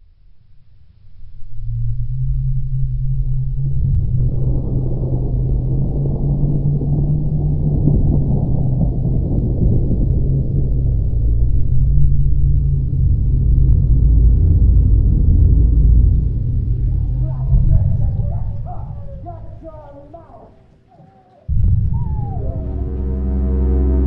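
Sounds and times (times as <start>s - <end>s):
deep rumbling drone: 0.0s - 20.8s, 21.4s - 24.0s
low hum: 0.0s - 24.0s.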